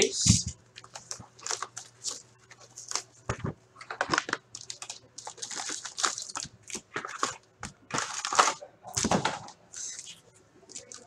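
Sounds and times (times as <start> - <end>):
cardboard and wrappers rustling: 0.3 - 10.1.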